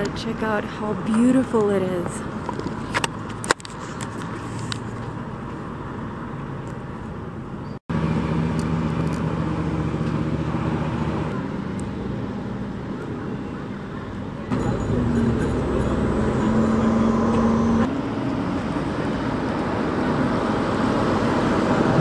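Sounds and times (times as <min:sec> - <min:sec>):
hum of vehicles: 0:00.0 - 0:22.0
low engine drone: 0:07.9 - 0:22.0.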